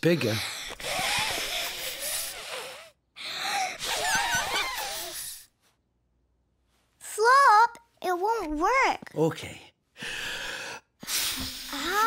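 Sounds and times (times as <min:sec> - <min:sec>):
child blowing into a balloon: 0:00.6 - 0:03.0, 0:03.6 - 0:05.5, 0:11.0 - 0:12.0.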